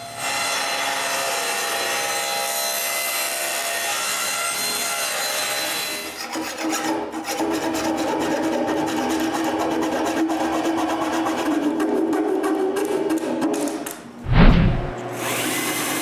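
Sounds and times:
rapid scraping strokes: 0:14.2 - 0:14.9.

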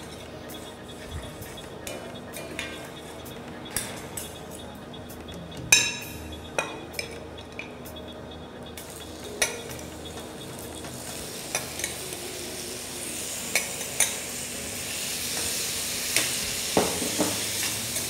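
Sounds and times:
metal spoon clinking on glass: 0:05.7 - 0:07.7
fruit sizzling in a hot pan: 0:10.6 - 0:18.0.

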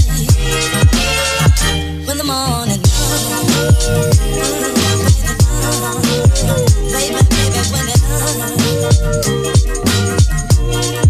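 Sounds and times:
electronic music with steady beat: 0:00.0 - 0:02.2, 0:02.8 - 0:11.0
deep kick drums sliding down: 0:02.9 - 0:10.8.

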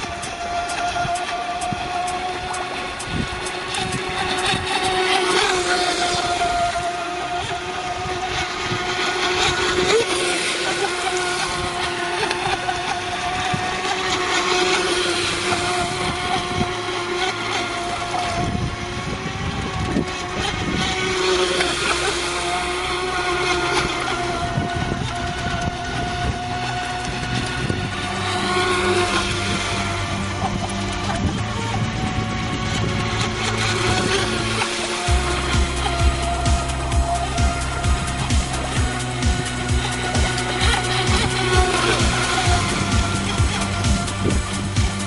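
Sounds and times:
boat hiss on water: 0:00.0 - 0:19.2, 0:20.3 - 0:31.2
electric motor high whine: 0:00.0 - 0:45.0.

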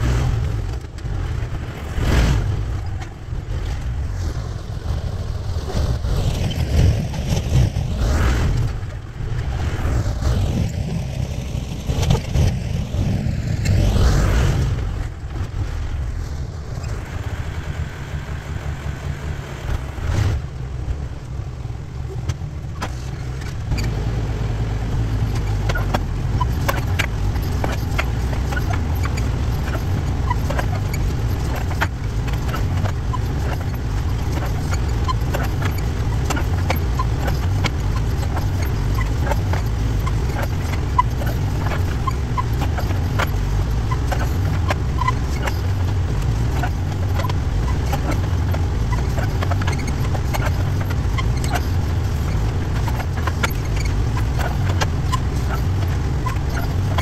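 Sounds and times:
backhoe engine running: 0:00.0 - 0:57.0.

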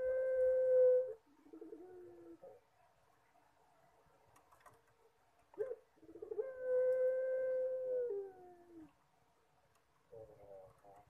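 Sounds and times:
dove cooing: 0:00.0 - 0:02.6, 0:05.6 - 0:08.9, 0:10.1 - 0:11.0.

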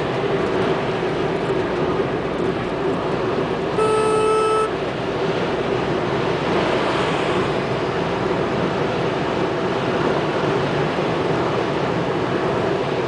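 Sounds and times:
road and engine noise in car: 0:00.0 - 0:13.0
car horn blast: 0:03.8 - 0:04.8.

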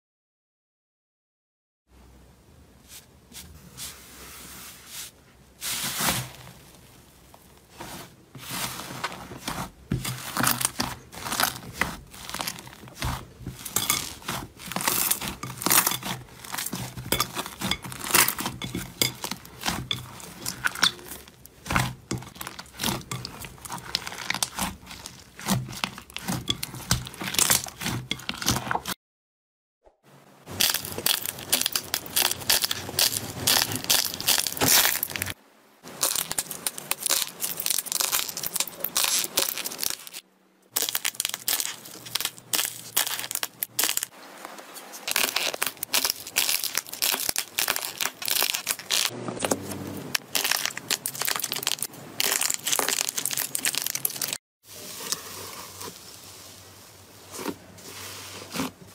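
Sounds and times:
slime crackling and popping: 0:10.0 - 0:28.8, 0:30.5 - 0:44.1, 0:45.0 - 0:49.1, 0:50.2 - 0:54.4.

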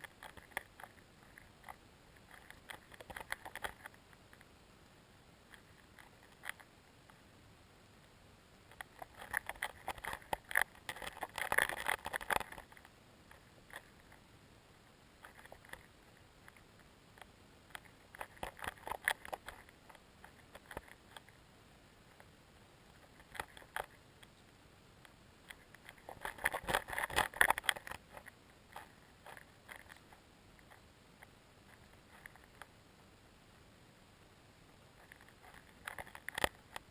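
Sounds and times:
underwater crackling and clicking: 0:00.0 - 0:04.5, 0:08.7 - 0:13.0, 0:15.2 - 0:21.4, 0:23.0 - 0:24.4, 0:25.5 - 0:32.7.

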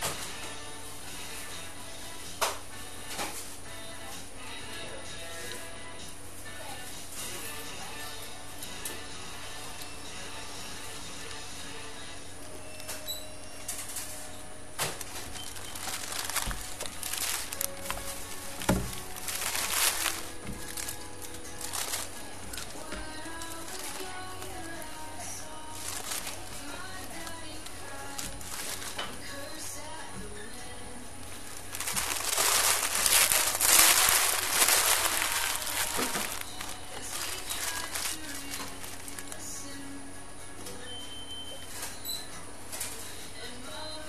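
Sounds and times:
background music: 0:00.0 - 0:44.0
paper wrapper rustling: 0:13.7 - 0:29.8, 0:31.2 - 0:39.7.

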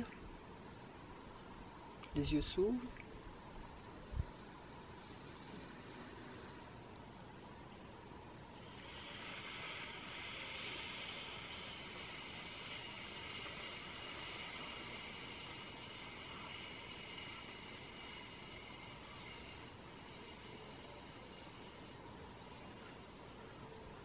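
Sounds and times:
woman hissing on out-breath: 0:08.6 - 0:20.4.

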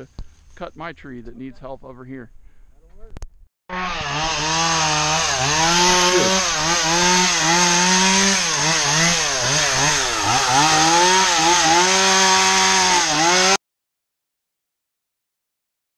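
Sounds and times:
chainsaw cutting branches: 0:03.7 - 0:13.6.

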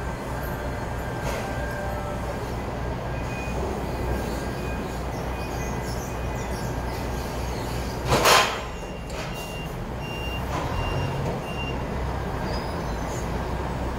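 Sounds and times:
forklift reversing alarm beeping: 0:00.0 - 0:06.8, 0:08.6 - 0:12.0
forklift engine hum: 0:00.0 - 0:13.9.

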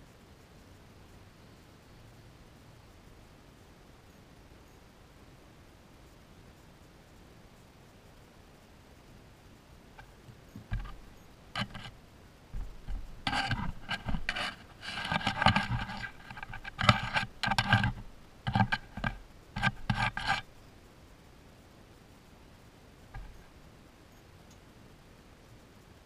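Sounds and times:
animal scratching against microphone: 0:10.0 - 0:12.0, 0:12.6 - 0:20.5, 0:23.1 - 0:23.5.

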